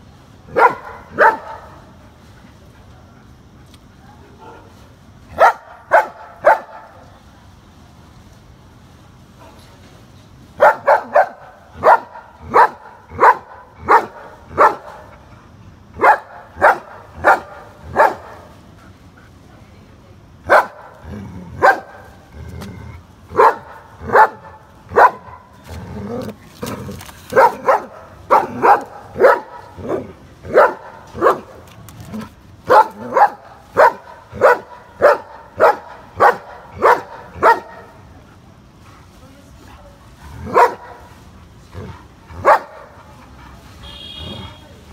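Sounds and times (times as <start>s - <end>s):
dog barking: 0.5s - 1.8s, 5.4s - 7.0s, 10.6s - 15.1s, 16.0s - 18.5s, 20.5s - 20.9s, 21.6s - 22.1s, 23.3s - 25.5s, 27.3s - 31.5s, 32.7s - 38.0s, 40.4s - 41.1s, 42.3s - 43.0s.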